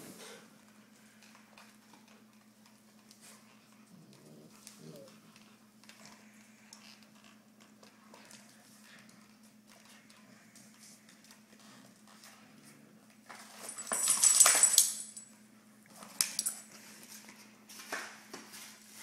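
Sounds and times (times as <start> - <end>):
dog low vocal sound: 3.7 - 5.5
dog claws clicking on hard floor: 15.9 - 18.5.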